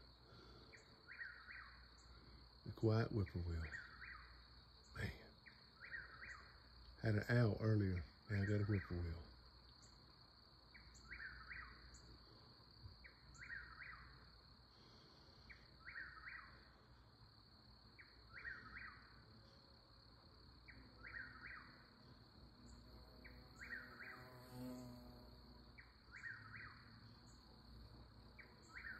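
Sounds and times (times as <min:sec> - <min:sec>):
high insect trill: 0:00.0 - 0:28.9.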